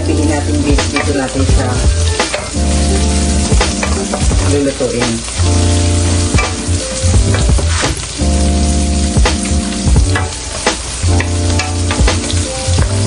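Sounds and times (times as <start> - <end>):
background music: 0.0 - 13.0
onions sizzling in oil: 0.0 - 13.0
wooden spatula scraping a pan: 0.6 - 8.1.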